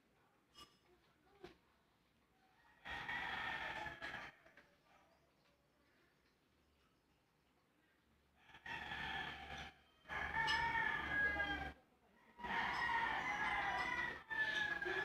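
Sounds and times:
rooster crowing: 0:02.7 - 0:04.3, 0:08.4 - 0:11.8, 0:12.4 - 0:15.0.

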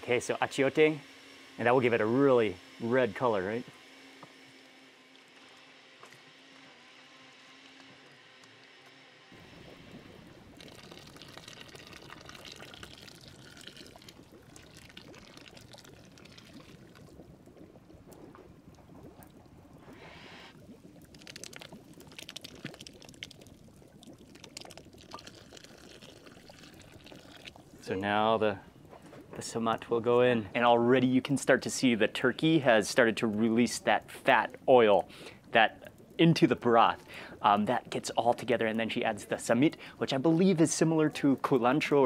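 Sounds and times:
broth simmering and bubbling: 0:00.0 - 0:42.0
sauce being poured: 0:10.5 - 0:17.0, 0:24.2 - 0:27.6.

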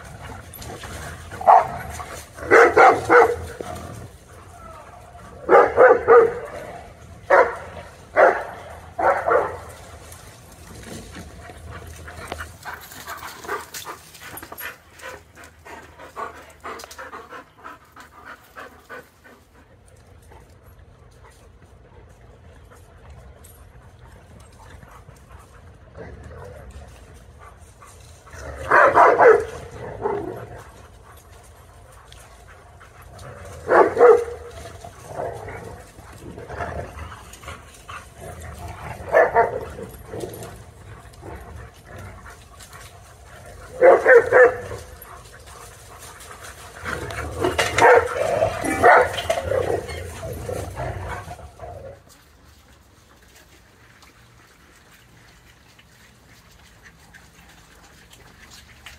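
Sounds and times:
dogs barking: 0:00.0 - 0:04.2, 0:05.3 - 0:10.1, 0:28.4 - 0:31.3, 0:32.8 - 0:36.4, 0:38.6 - 0:40.4, 0:43.2 - 0:45.6, 0:46.5 - 0:51.7.

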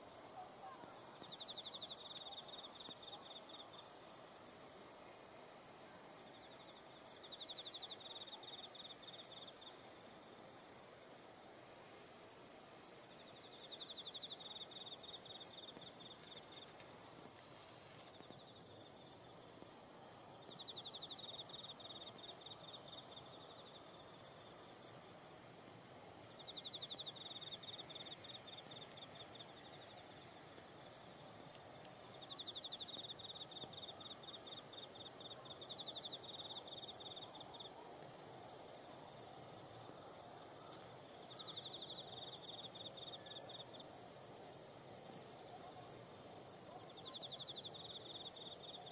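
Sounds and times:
faint open-air noise: 0:00.0 - 0:48.9
high-pitched insect hiss: 0:00.0 - 0:48.9
insect trilling in rapid pulses: 0:12.4 - 0:31.4, 0:39.0 - 0:44.3.

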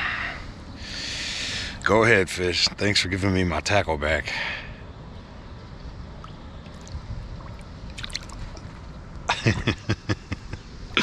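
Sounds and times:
sharp knocks and splashes: 0:06.2 - 0:08.9
water lapping around kayak: 0:06.2 - 0:09.3.

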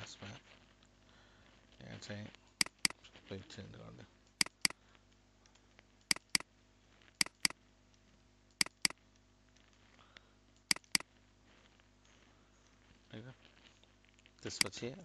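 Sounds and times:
mouse double-clicks: 0:02.6 - 0:03.0, 0:04.4 - 0:04.8, 0:06.1 - 0:06.4, 0:07.2 - 0:07.6, 0:08.6 - 0:09.0, 0:10.7 - 0:11.0.

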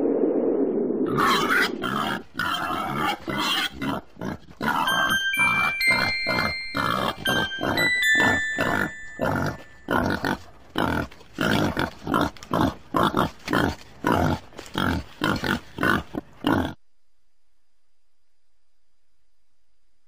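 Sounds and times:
pig grunting: 0:01.2 - 0:16.8.

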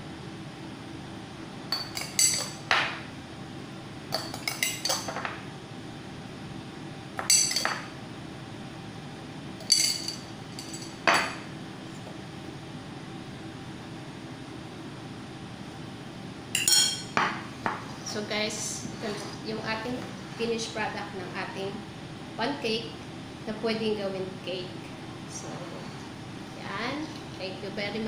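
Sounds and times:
metal spoon clinking on glass jar: 0:01.7 - 0:02.6, 0:07.3 - 0:07.8, 0:09.6 - 0:11.3, 0:16.6 - 0:17.1.

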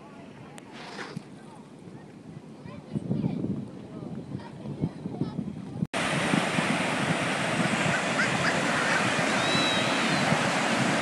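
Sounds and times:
ocean surf breaking: 0:06.0 - 0:11.0.

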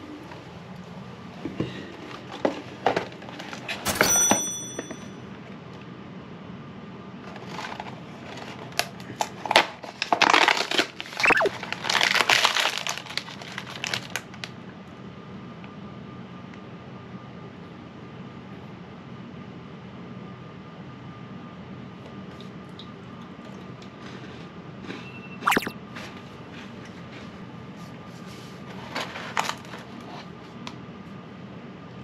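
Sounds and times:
short bright ring: 0:04.0 - 0:05.2.

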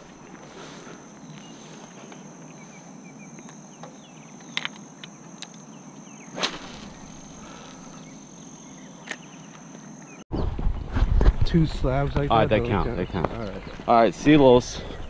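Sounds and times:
fishing rod swishing: 0:06.4 - 0:07.1.

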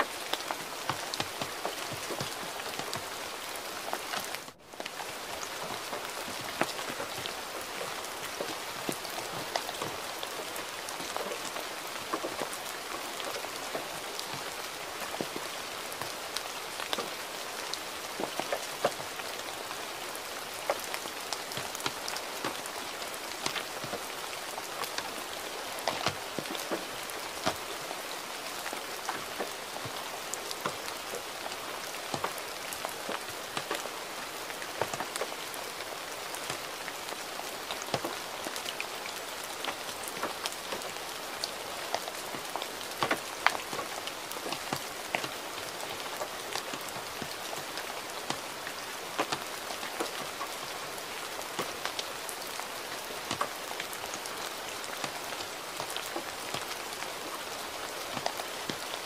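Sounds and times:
gentle rain hiss: 0:00.0 - 0:59.0
raindrops ticking on a surface: 0:00.0 - 0:59.0.

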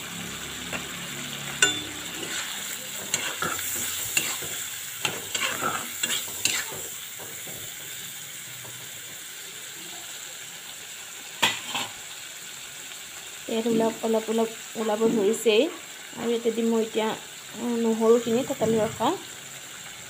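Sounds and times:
fish and potatoes sizzling in oil: 0:00.0 - 0:20.0
metal spatula scraping and clinking: 0:01.6 - 0:07.6.

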